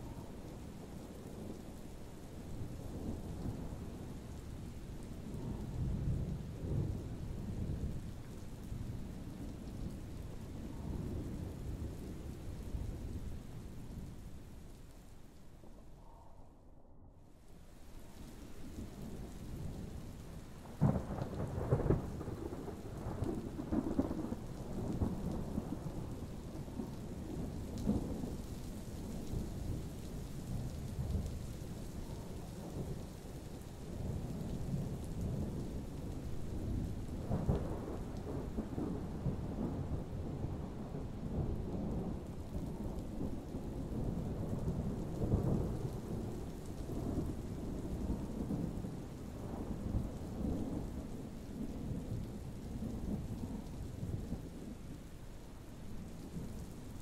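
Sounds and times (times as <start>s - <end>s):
steady rain: 0.0s - 16.3s, 17.1s - 57.0s
thunder rumbling: 18.4s - 57.0s.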